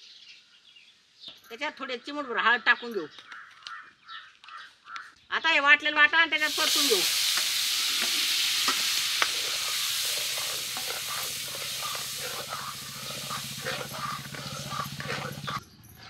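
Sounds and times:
paste sizzling in hot oil: 6.4 - 15.6.

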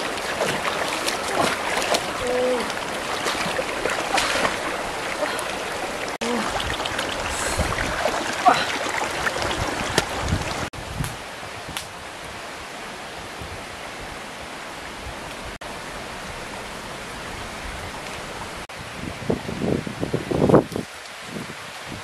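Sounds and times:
water rushing over rocks: 0.0 - 10.7.

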